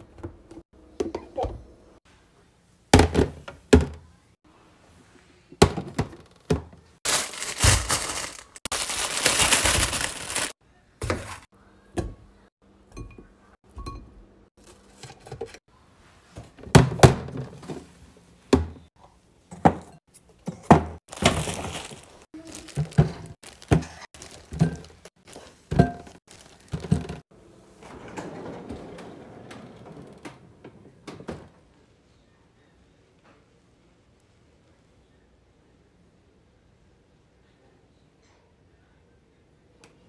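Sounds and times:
rustling: 7.1 - 10.6
glass bowls knocking and clinking: 25.7 - 27.2.

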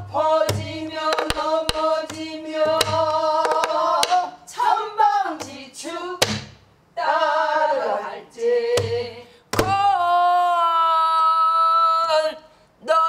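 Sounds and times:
barrel drum strokes: 0.0 - 4.2
woman singing: 7.0 - 13.0.

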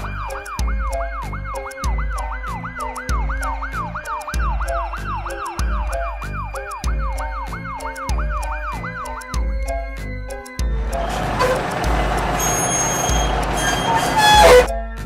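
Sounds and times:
background music with steady beat: 0.0 - 15.0
ambulance siren wailing: 10.8 - 14.7.

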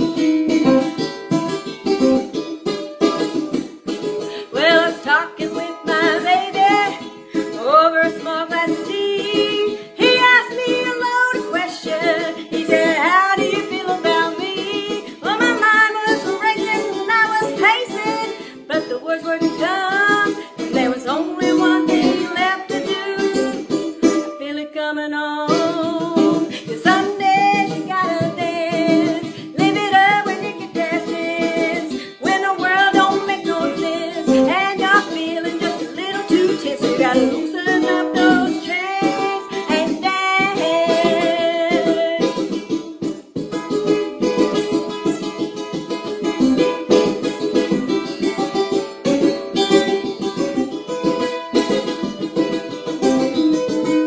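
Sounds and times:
ukulele strumming: 0.0 - 54.0
woman singing: 4.3 - 42.7.

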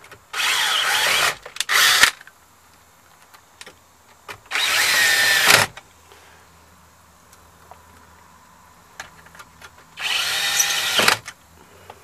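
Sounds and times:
drill driving screws into plastic: 0.3 - 2.2, 4.4 - 5.8, 10.0 - 11.3.

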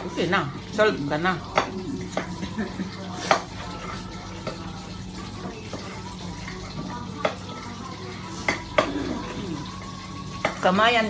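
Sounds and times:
dishes clinking: 8.2 - 9.6.

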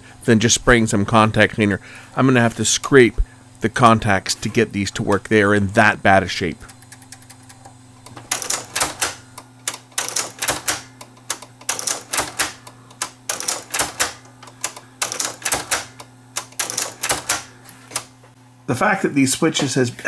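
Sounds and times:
faint low hum: 0.0 - 20.0.

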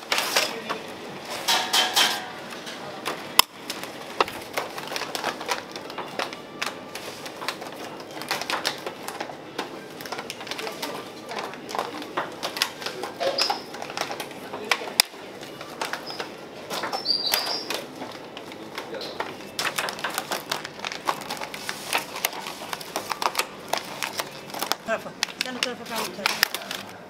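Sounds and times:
kitchen utensils clicking and knocking: 1.4 - 2.8.

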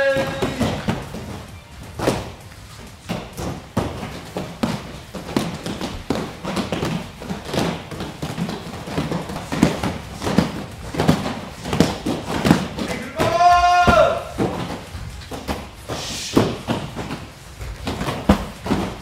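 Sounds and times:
loud shout: 0.0 - 0.8, 12.8 - 14.4.

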